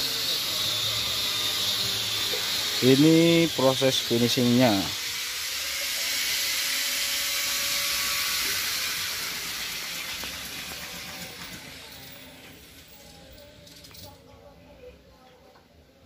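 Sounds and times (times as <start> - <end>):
paint spray gun hissing: 1.8 - 12.4.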